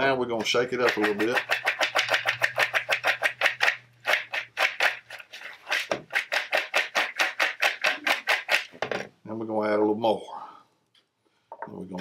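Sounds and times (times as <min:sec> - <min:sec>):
popcorn rattling in glass bowl: 0:00.8 - 0:08.8.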